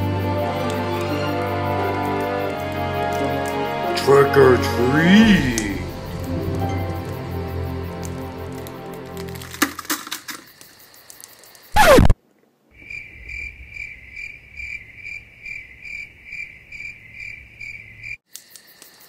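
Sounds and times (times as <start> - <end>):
cricket chirping sound effect: 0.0 - 19.0
whoosh falling in pitch: 11.8 - 12.2.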